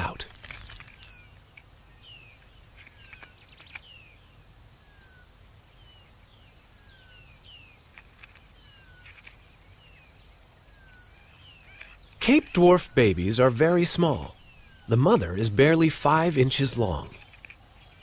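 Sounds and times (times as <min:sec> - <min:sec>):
small birds chirping: 0:00.0 - 0:18.0
steady high hiss: 0:12.0 - 0:17.1.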